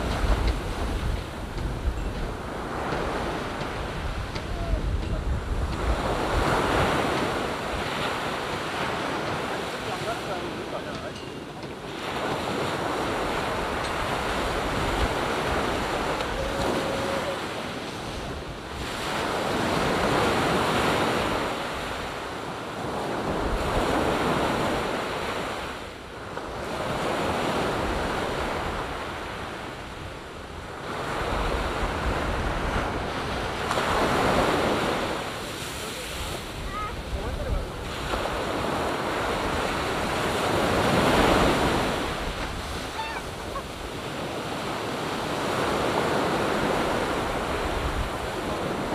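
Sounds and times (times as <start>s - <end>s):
ocean surf on a beach: 0.0s - 48.9s.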